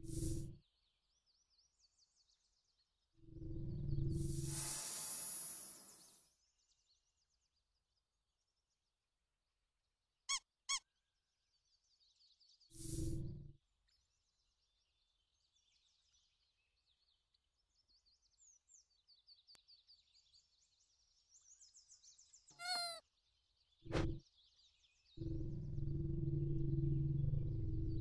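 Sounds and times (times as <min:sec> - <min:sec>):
faint bird chirping: 0:00.0 - 0:03.1, 0:10.3 - 0:28.0
cartoon squeaks: 0:22.6 - 0:23.0.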